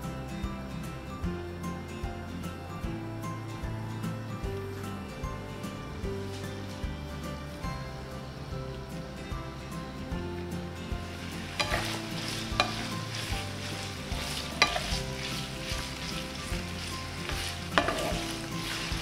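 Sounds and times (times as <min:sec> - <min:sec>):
beef sizzling in hot oil: 0:10.9 - 0:19.0
wooden spatula scraping a pan: 0:11.0 - 0:19.0.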